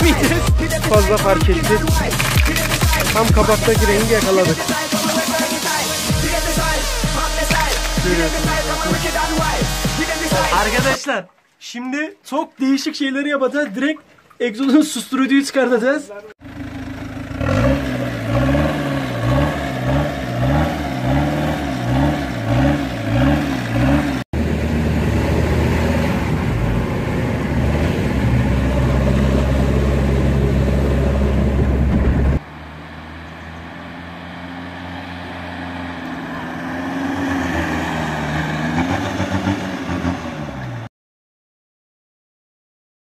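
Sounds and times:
loud low engine drone: 16.4 - 36.7
van engine revving: 16.4 - 40.9.

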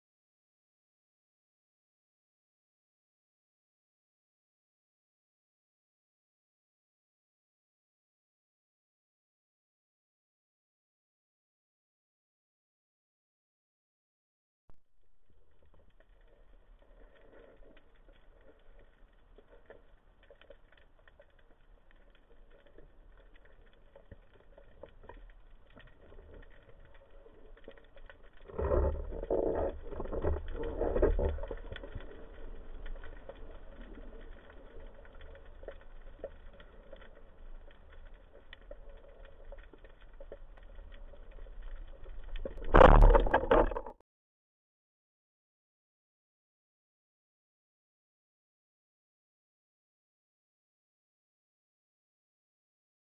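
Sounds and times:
faint underwater crackle: 14.7 - 44.0.

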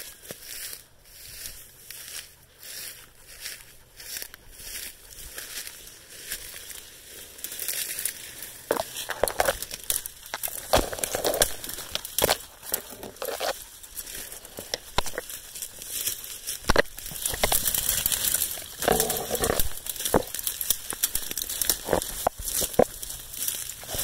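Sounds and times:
branches scraping: 0.0 - 24.0
footsteps crunching dry leaves: 0.0 - 24.0
twigs snapping: 5.3 - 24.0.

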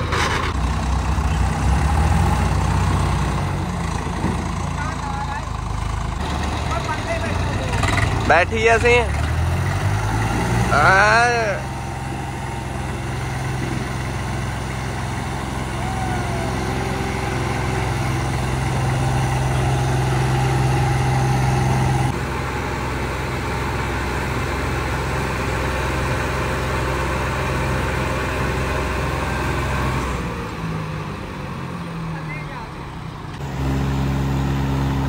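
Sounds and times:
tractor engines running under load: 0.0 - 35.0.

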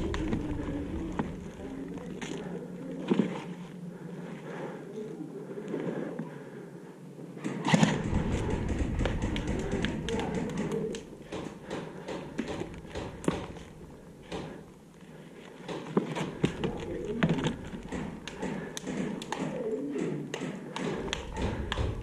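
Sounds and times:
rustling and rumbling: 0.0 - 4.6, 7.5 - 20.3, 20.9 - 22.0
loud bump: 7.9 - 10.6
sharp taps and clicks: 8.0 - 14.6, 15.7 - 22.0.

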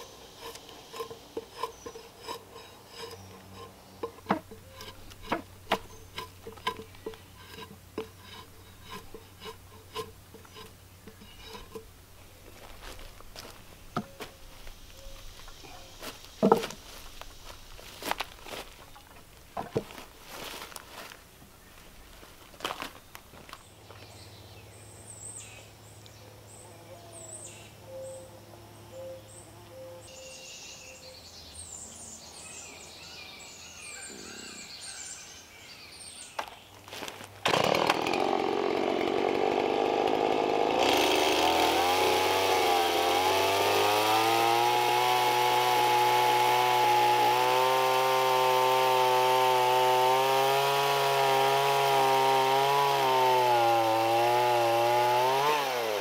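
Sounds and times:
chainsaw running loudly: 0.0 - 11.8, 37.4 - 56.0
faint bird chirps: 14.0 - 16.4, 23.6 - 36.8.

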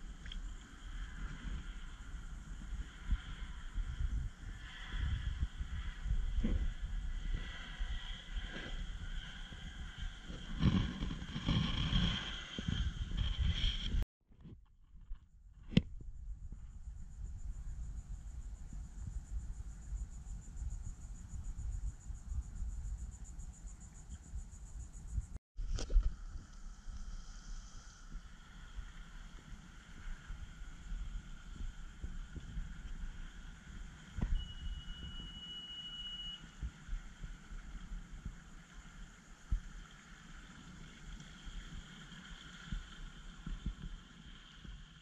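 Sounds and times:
wind rumble on microphone: 0.0 - 45.0
steady high-pitched tone: 34.1 - 36.8.

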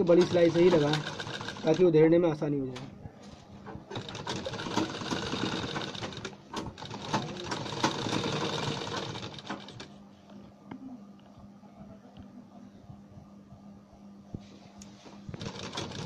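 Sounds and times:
sewing machine stitching: 0.0 - 1.8, 3.8 - 9.9, 15.4 - 16.0.

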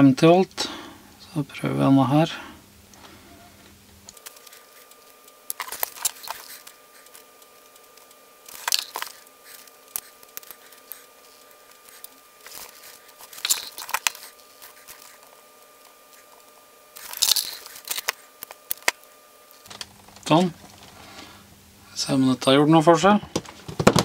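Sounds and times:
plastic parts clicking and crackling: 4.1 - 20.9.

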